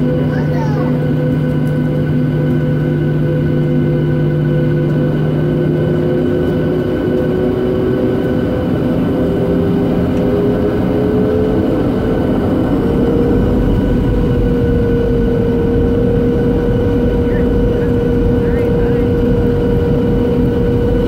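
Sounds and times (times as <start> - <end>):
jet engines whining drone: 0.0 - 21.0
low rumble: 7.4 - 21.0.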